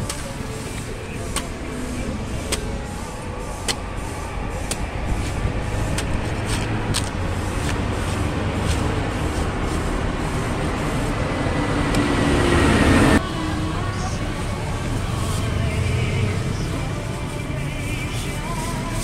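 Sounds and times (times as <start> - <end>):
machete chopping coconut husk: 0.0 - 2.8, 3.6 - 9.7
street traffic noise: 0.0 - 19.0.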